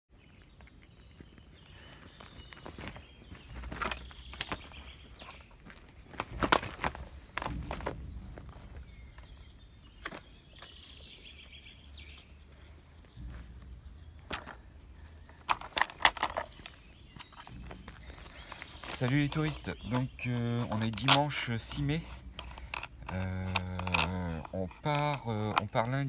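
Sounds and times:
birds chirping: 0.1 - 26.0
footsteps on gravel and grass: 0.2 - 26.0.

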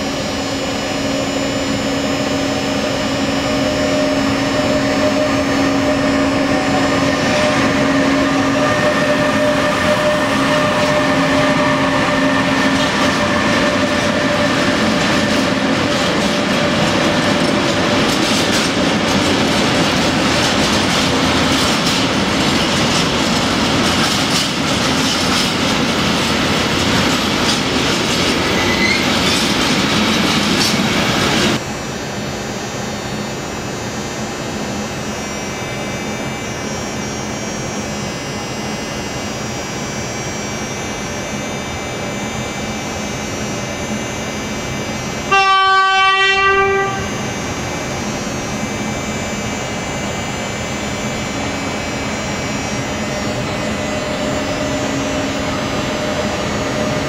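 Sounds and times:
electric locomotive motor whine: 0.0 - 57.0
short wheel squeal: 28.4 - 29.5.

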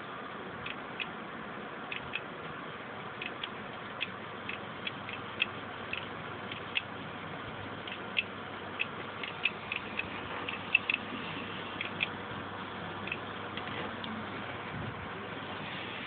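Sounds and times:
hard drive clicking: 0.6 - 1.2, 1.8 - 15.4
steady hiss: 4.7 - 16.0.

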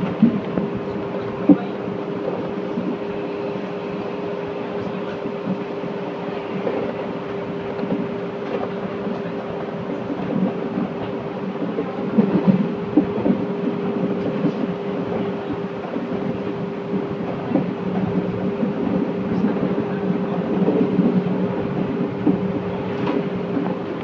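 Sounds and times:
electric train humming: 0.0 - 24.0
wheels knocking over rail joints: 6.6 - 24.0.

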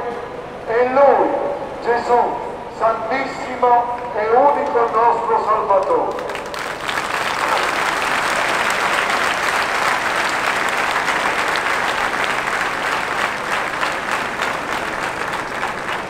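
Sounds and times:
crowd applauding: 5.8 - 16.0.

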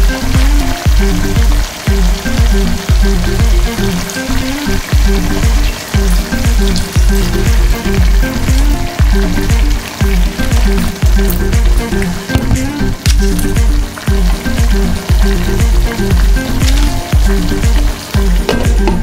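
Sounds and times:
background music with bass beat: 0.0 - 19.0
meat sizzling in a pot: 0.0 - 19.0.

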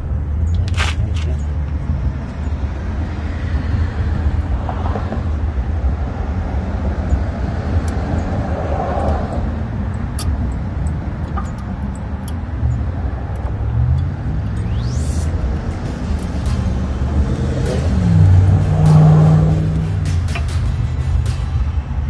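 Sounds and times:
steady low rumble: 0.0 - 22.0
brake pads clicking into place: 0.5 - 1.5, 10.1 - 14.7.

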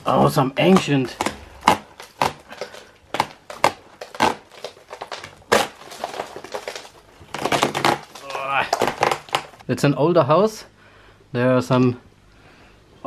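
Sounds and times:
plaster cracking and crumbling: 0.0 - 9.6.

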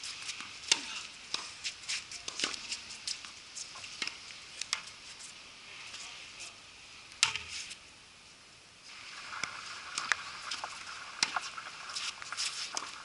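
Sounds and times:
light hiss: 0.0 - 13.0
tennis ball bouncing: 2.2 - 2.8
tennis racket hitting ball: 2.2 - 2.8.

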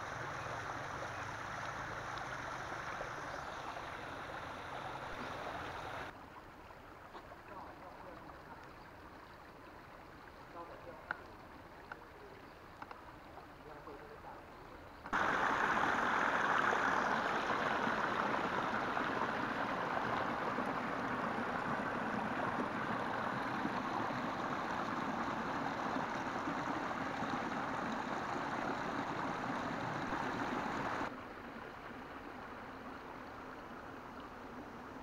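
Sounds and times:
water rushing over rocks: 15.1 - 31.1.

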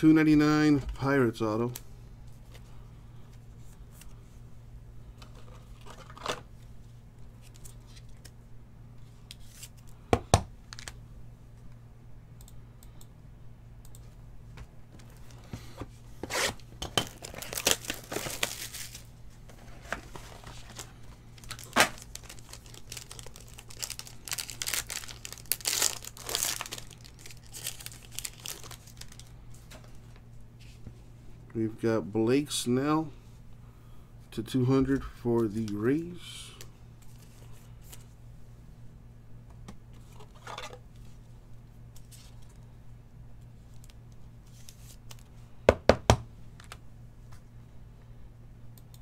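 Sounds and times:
faint steady hum: 0.0 - 49.0
plastic wrapping tearing and crinkling: 16.3 - 19.1, 20.1 - 29.3.

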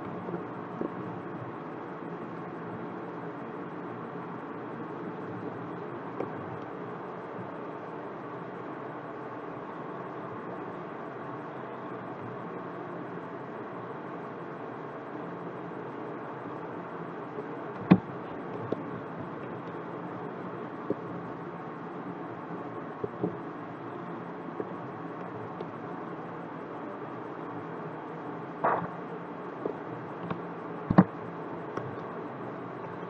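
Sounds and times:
background hum and hiss: 0.0 - 33.0
short sharp clicks: 28.6 - 29.0.

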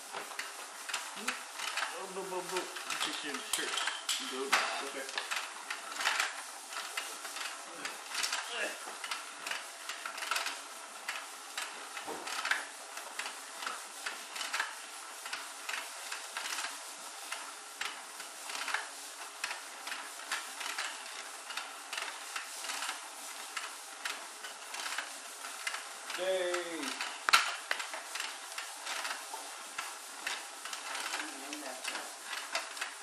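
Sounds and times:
toy mechanism rattling clicks: 0.2 - 33.0.

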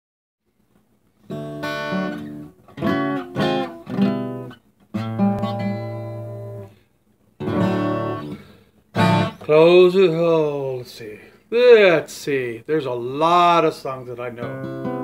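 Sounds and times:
acoustic guitar chords strummed: 0.7 - 10.2, 13.8 - 15.0.

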